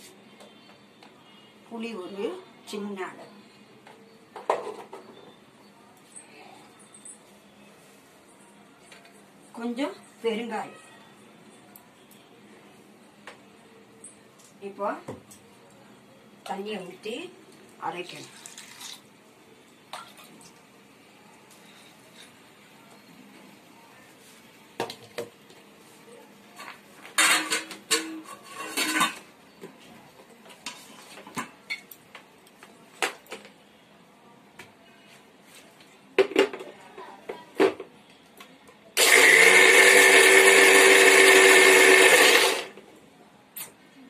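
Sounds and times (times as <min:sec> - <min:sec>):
kitchen utensils clattering: 0:27.1 - 0:29.3
electric mixer grinder running: 0:39.0 - 0:42.7.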